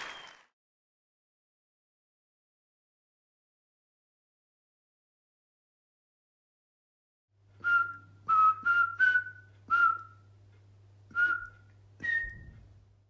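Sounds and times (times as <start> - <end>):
short whistled notes: 0.0 - 0.4, 7.6 - 10.2, 11.1 - 12.6
faint low hum: 7.4 - 13.0.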